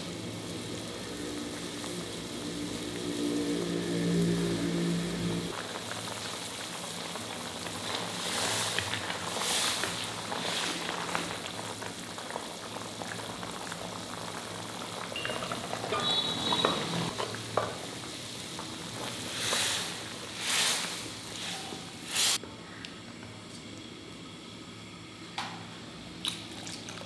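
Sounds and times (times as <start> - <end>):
food sizzling and bubbling in pan: 0.0 - 22.4
small crackles: 5.5 - 17.5.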